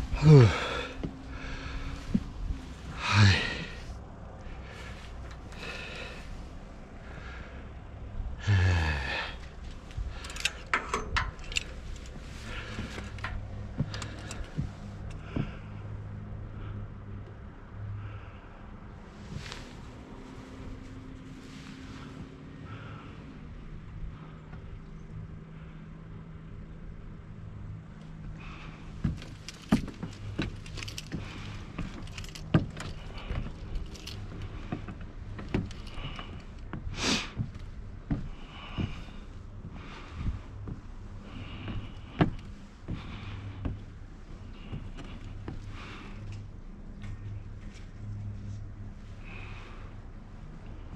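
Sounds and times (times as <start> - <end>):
man sighing: 0.0 - 2.2, 2.9 - 3.9, 8.4 - 9.5
low steady hum: 0.0 - 50.9
sharp clicks and knocks: 10.2 - 12.2.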